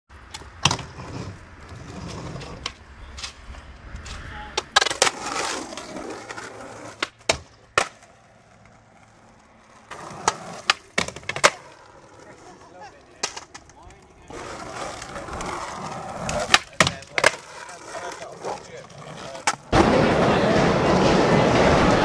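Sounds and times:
skateboard wheels rolling on asphalt: 0.1s - 22.0s
skateboard scraping concrete ledge: 0.6s - 3.4s, 4.1s - 22.0s
skateboard clacking: 4.5s - 22.0s.

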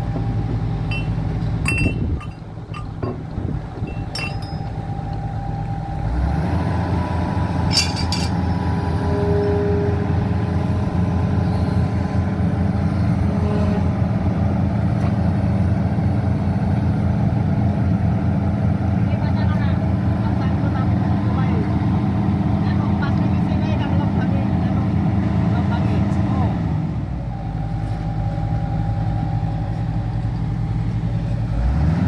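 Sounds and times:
excavator diesel engine running: 0.0s - 32.0s
sharp metal clinks: 0.9s - 3.1s, 3.9s - 4.8s, 7.7s - 8.4s.

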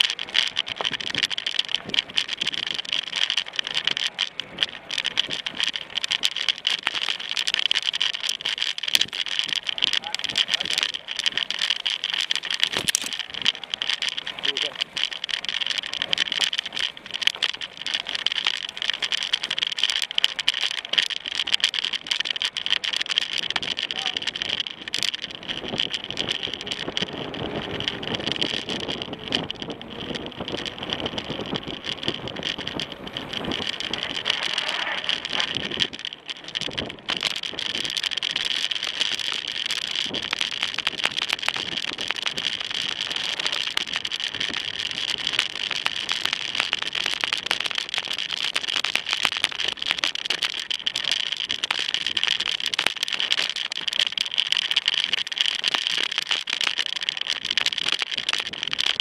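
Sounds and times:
bike tyre noise: 0.0s - 59.0s
mountain bike rattling: 0.0s - 59.0s.

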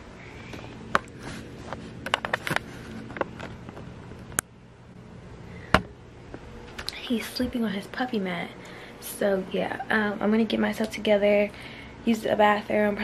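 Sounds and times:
low hum: 0.0s - 12.1s
camera handling clicks and scrapes: 1.0s - 3.5s.

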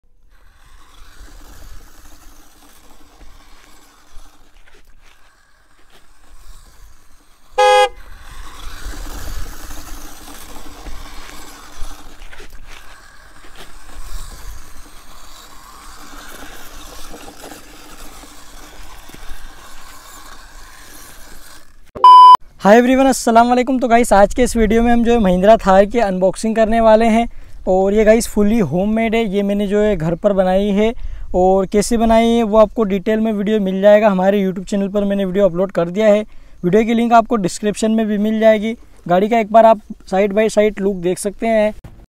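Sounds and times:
small electric motor whine: 0.1s - 22.0s
car horn toot: 7.6s - 8.0s.

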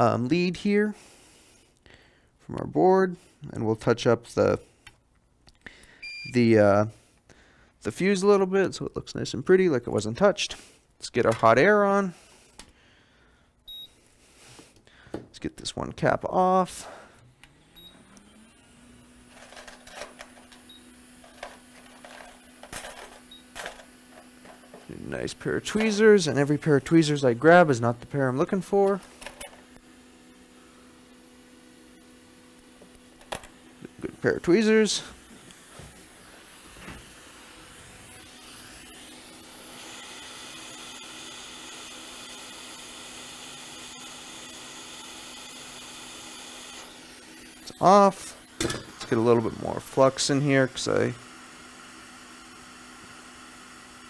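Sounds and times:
hot air blower humming: 16.2s - 54.0s.

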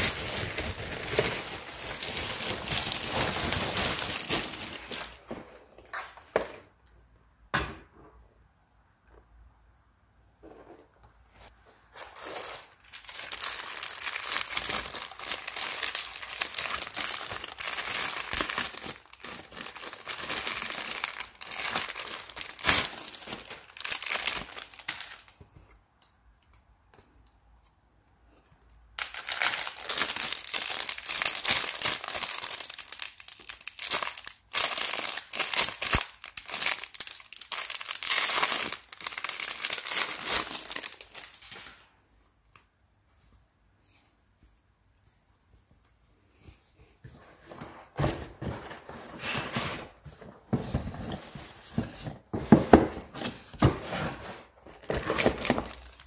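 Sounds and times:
plastic wrap rustling and crackling: 0.0s - 6.4s, 10.8s - 25.6s, 29.0s - 42.0s, 46.8s - 56.0s.

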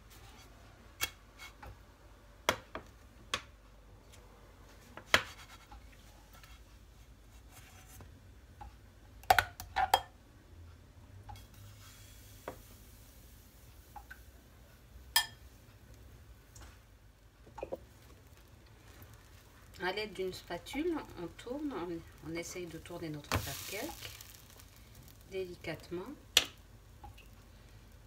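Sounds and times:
batter hissing in pan: 11.4s - 14.3s, 17.9s - 25.6s.

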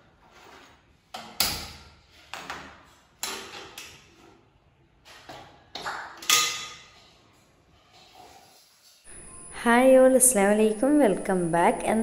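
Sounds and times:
metal pot and lid clanking: 6.2s - 7.1s.

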